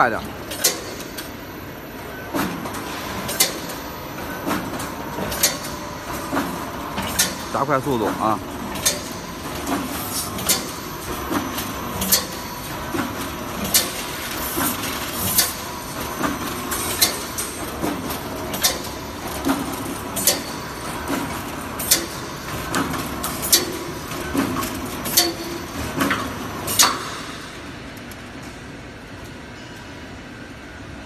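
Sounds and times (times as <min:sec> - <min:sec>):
welding machine clacking: 0:00.0 - 0:01.3, 0:02.2 - 0:28.2
machine hum: 0:00.0 - 0:28.5
light machine clicks: 0:08.7 - 0:09.8.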